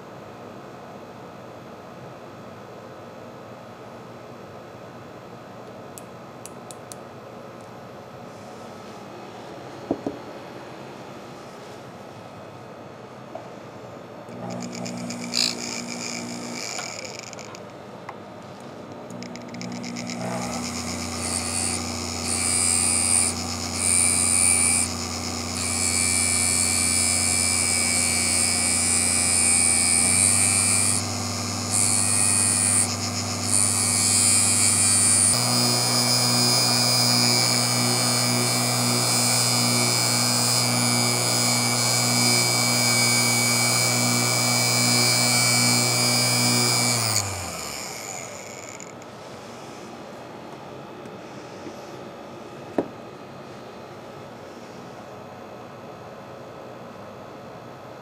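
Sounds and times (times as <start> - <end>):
cutoff wheel grinding steel: 14.3 - 17.7, 19.1 - 49.1
rotary tool motor whine: 14.3 - 17.7, 19.1 - 49.1.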